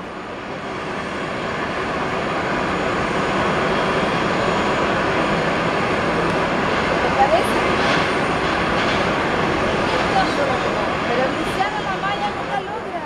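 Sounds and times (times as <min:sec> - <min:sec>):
jet engine humming: 0:00.0 - 0:13.0.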